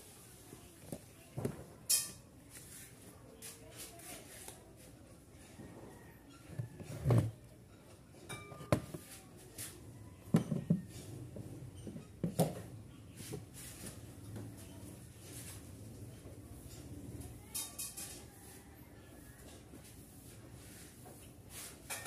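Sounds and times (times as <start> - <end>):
kitchenware knocking and clattering: 8.3 - 9.1, 10.3 - 12.7.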